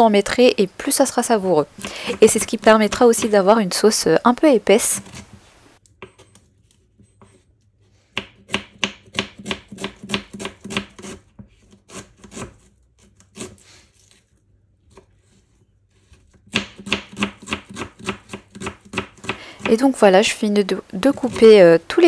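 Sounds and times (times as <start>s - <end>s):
knife slicing onions on board: 8.1s - 12.6s, 16.3s - 19.8s.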